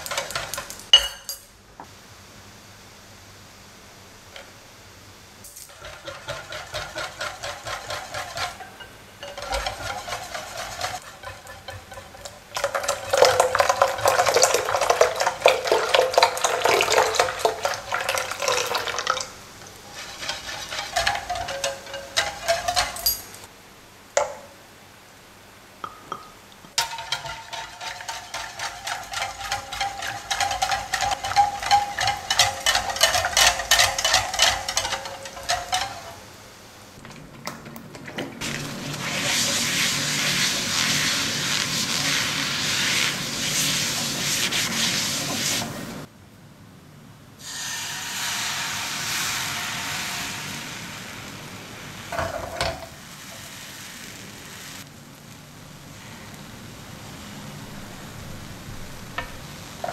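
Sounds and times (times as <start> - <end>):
whisk clinking against glass bowl: 5.7 - 18.6, 19.9 - 23.4, 25.9 - 36.2.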